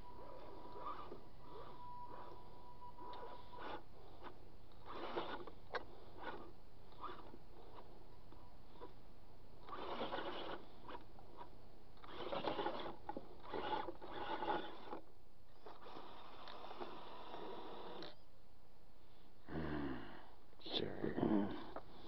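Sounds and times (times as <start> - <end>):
electric motor whirring: 0.0 - 7.9, 9.6 - 18.2.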